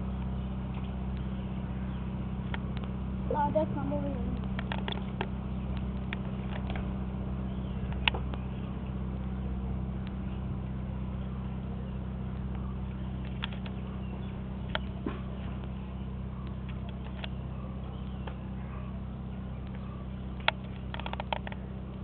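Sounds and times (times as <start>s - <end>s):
low mechanical hum: 0.0s - 22.0s
sharp clicks: 4.3s - 6.9s, 7.8s - 8.5s, 13.2s - 13.8s, 16.4s - 17.4s, 20.4s - 22.0s.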